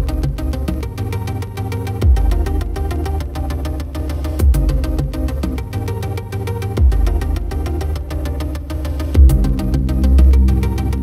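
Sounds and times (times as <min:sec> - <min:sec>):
electronic music with steady beat: 0:00.0 - 0:11.0
deep bass hit: 0:09.2 - 0:11.0.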